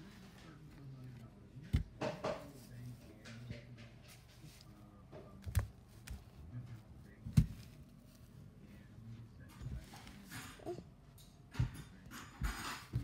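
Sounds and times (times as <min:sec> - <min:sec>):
dolls knocking and rustling: 0:11.4 - 0:13.0.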